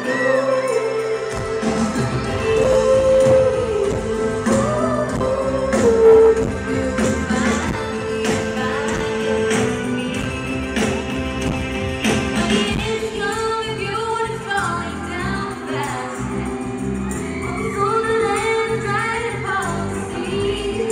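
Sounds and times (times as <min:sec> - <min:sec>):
person singing: 0:00.0 - 0:11.0
live pop band playing: 0:00.0 - 0:20.9.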